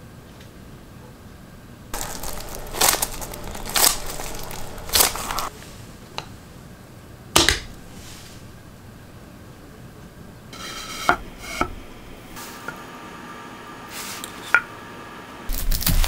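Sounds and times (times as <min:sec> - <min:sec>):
plastic film crinkling: 0:02.0 - 0:05.5, 0:15.5 - 0:16.0.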